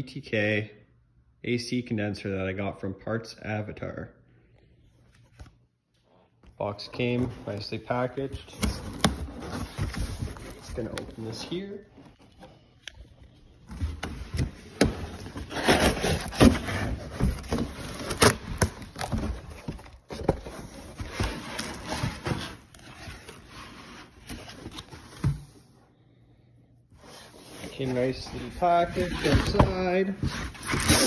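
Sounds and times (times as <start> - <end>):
cardboard scraping and rubbing: 7.0 - 12.4, 13.7 - 25.4, 27.0 - 31.0.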